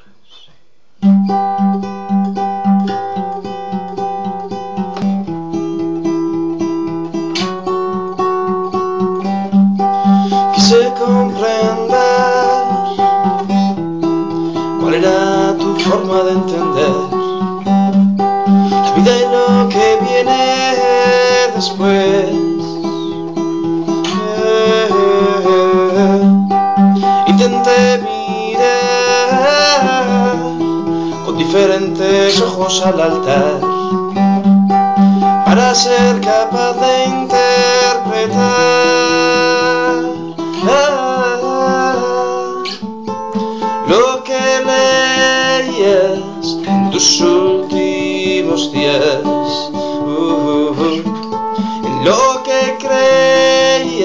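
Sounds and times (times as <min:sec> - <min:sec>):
acoustic guitar picking chords: 0:00.0 - 0:54.0
man singing: 0:10.0 - 0:17.9, 0:18.5 - 0:34.3, 0:35.0 - 0:54.0.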